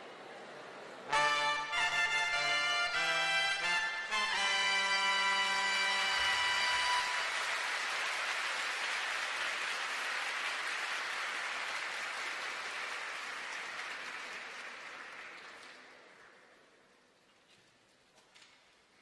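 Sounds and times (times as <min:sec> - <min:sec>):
audience applauding: 0:04.9 - 0:16.5.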